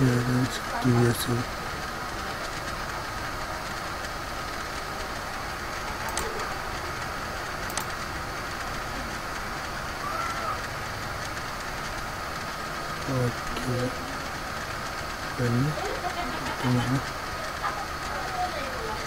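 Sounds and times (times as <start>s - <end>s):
room tone hiss and hum: 0.0s - 19.0s
computer mouse clicks: 6.0s - 6.4s, 7.6s - 7.9s.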